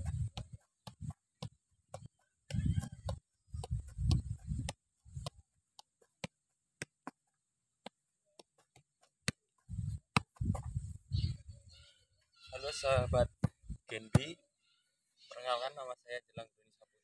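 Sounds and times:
football taps: 0.0 - 11.0, 12.9 - 14.4.

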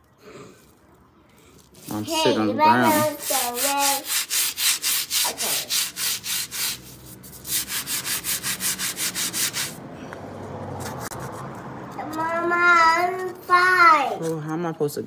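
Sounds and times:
brush scrubbing concrete floor: 1.7 - 9.8.

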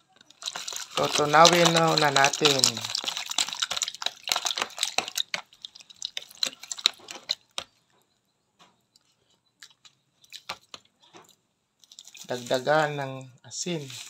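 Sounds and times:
wet squishes of stirred fish: 0.0 - 7.8, 9.6 - 10.9, 11.8 - 12.9.

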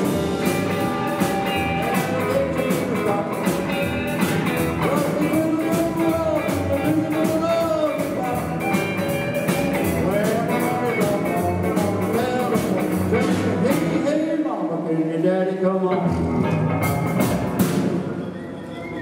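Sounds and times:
electric guitar lead: 0.0 - 14.0, 15.9 - 19.0
upright double bass: 0.0 - 14.1
acoustic guitar: 0.0 - 14.3
keyboard: 0.0 - 14.5.

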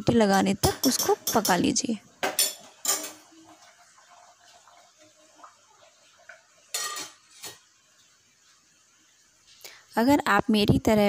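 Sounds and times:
ladle clinking in steel bowl: 6.7 - 7.6.

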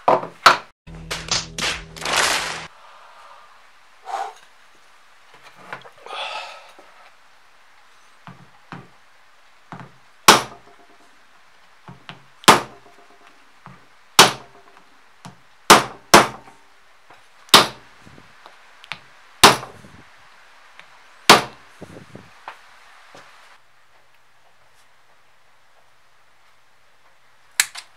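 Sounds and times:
hammer striking wooden block: 9.8 - 11.0, 12.1 - 13.3, 14.2 - 14.8, 15.7 - 16.5, 17.5 - 17.8, 19.4 - 19.7, 21.3 - 21.6.

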